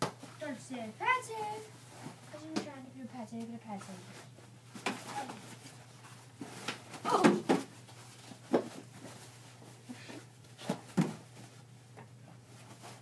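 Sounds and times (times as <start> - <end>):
floor hockey knocks and thumps: 6.4 - 9.1, 10.6 - 11.3.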